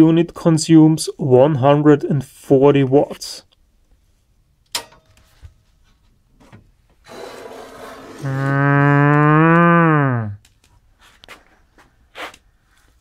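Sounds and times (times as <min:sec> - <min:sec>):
metal panel scraping open: 0:07.0 - 0:08.2
man's wordless ooh of admiration: 0:08.2 - 0:10.4.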